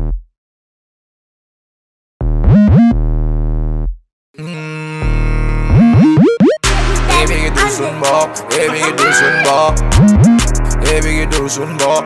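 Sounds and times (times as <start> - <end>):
buzzy synthesizer bass notes: 2.2 - 4.0, 5.2 - 7.9, 9.7 - 11.3
upward synth pitch sweeps: 5.7 - 7.5.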